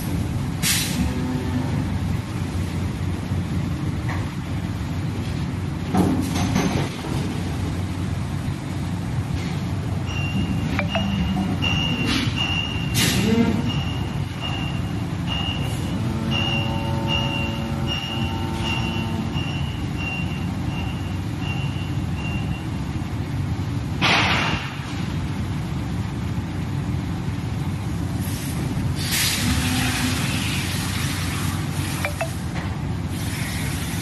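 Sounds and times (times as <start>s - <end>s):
high electronic beeps: 10.2s - 11.9s.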